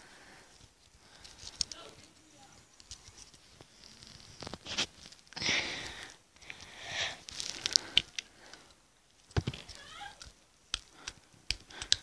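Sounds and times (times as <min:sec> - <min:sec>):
fingers rustling: 0:00.0 - 0:12.0
fidget spinner clicks and taps: 0:09.3 - 0:12.0.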